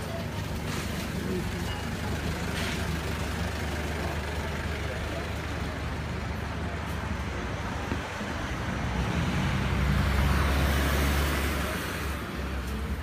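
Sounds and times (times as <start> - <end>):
street traffic rumble and tyre noise: 0.0 - 13.0
vehicle passing close by: 8.4 - 12.2.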